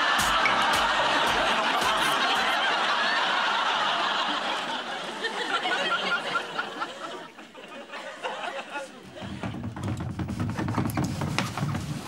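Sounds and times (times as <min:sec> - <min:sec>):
pop song beat: 0:00.0 - 0:02.6
studio audience laughing: 0:00.0 - 0:09.4.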